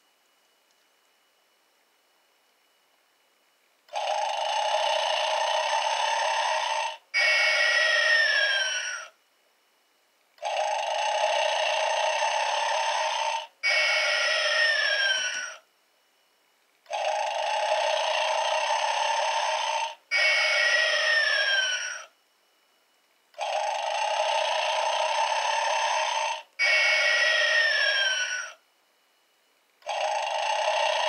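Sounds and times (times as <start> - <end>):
toy snoring with falling whistle: 3.9 - 9.2, 10.4 - 15.7, 16.9 - 22.2, 23.4 - 28.6, 29.8 - 31.0.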